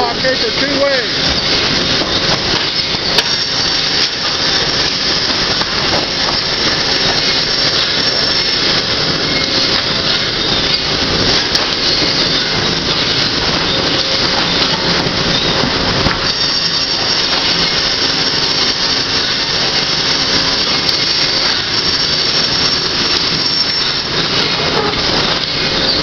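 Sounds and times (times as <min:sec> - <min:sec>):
sawmill machinery din: 0:00.0 - 0:26.0
sharp clicks and knocks: 0:01.3 - 0:17.9.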